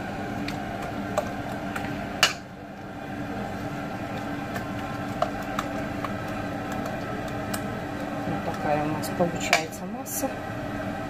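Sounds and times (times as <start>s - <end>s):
whisk stirring in a bowl: 0.0s - 9.8s
steady low hum: 0.0s - 11.0s
whisk clicking against bowl: 4.0s - 8.7s.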